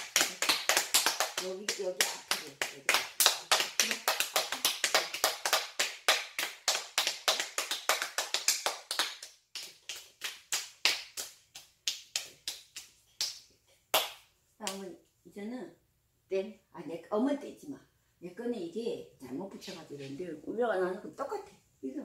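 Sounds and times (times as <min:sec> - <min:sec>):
rapid hand clapping: 0:00.0 - 0:14.8.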